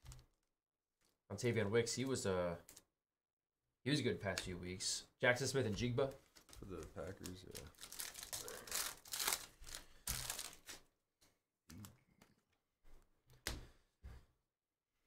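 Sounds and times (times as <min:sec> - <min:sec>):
foil wrapper tearing and crinkling: 0:06.3 - 0:10.8.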